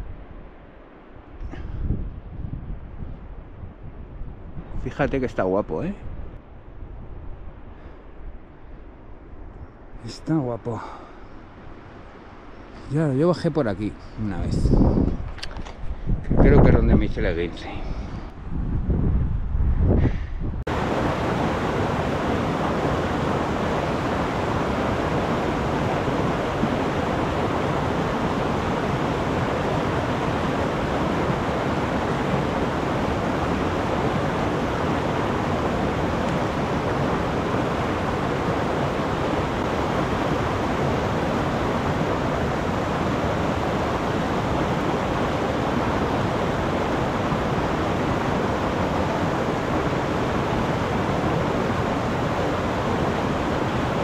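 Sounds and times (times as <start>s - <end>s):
mountain stream rushing: 20.7s - 54.0s.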